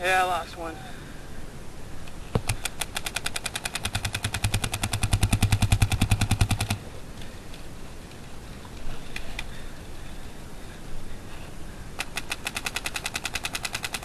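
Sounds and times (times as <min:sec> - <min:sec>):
paintball marker rapid firing: 0:02.4 - 0:06.8, 0:12.0 - 0:14.0.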